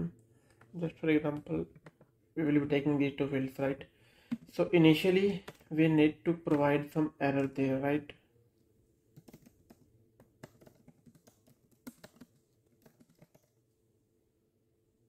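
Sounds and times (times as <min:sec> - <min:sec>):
keyboard typing: 0:05.3 - 0:05.7, 0:09.1 - 0:13.6.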